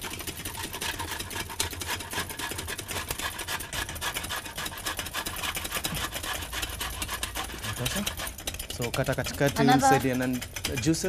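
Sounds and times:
eggs whisked in steel pot: 0.0s - 11.0s
lemon rind grated on box grater: 0.0s - 11.0s.

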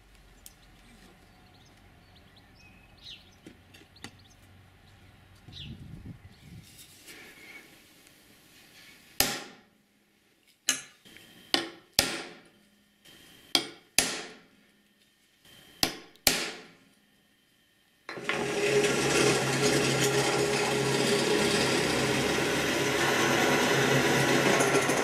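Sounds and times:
hammer striking center punch: 9.2s - 9.6s, 11.5s - 12.4s, 13.5s - 14.4s, 15.8s - 16.7s
drill press running: 18.1s - 25.0s.

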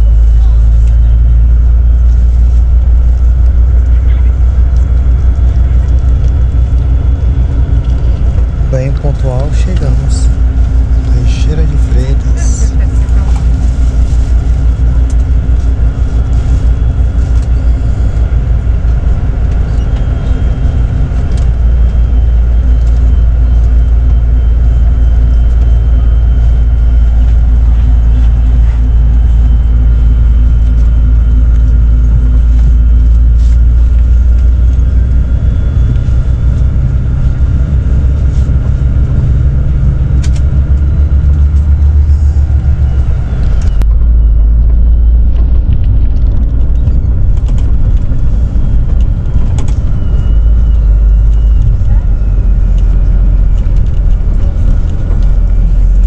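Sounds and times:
bus engine and road rumble: 0.0s - 56.0s.

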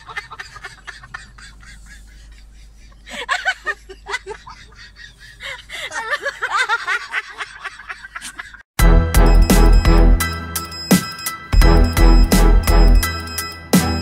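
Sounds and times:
person giggling: 0.0s - 8.6s.

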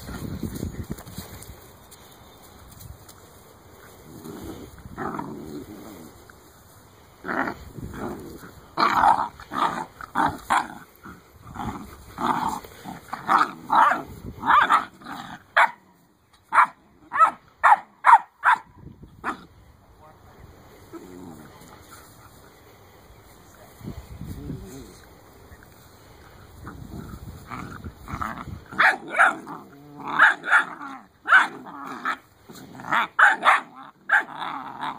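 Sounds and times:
puppies growling: 3.9s - 6.4s, 7.0s - 15.6s, 26.0s - 34.9s.

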